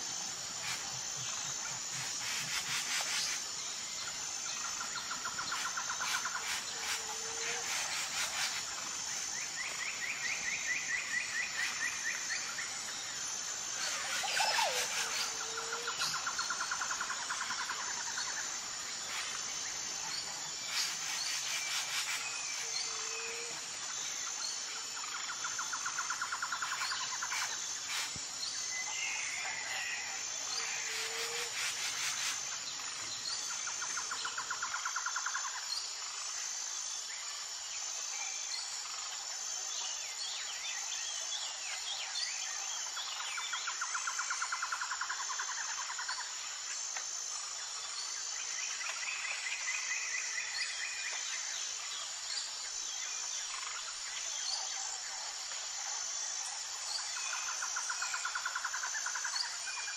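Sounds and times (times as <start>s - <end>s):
pulsing insect chorus: 0.0s - 59.9s.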